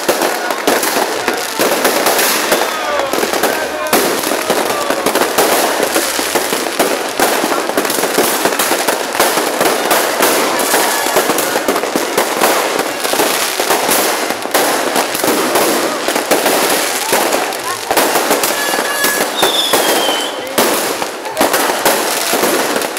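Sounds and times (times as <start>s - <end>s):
fireworks bangs and crackles: 0.0s - 22.9s.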